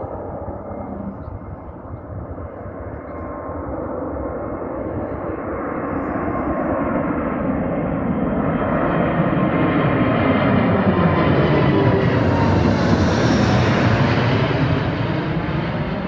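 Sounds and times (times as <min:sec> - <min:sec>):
faint steady whine: 0:00.0 - 0:07.1
jet engine roar: 0:00.0 - 0:16.0.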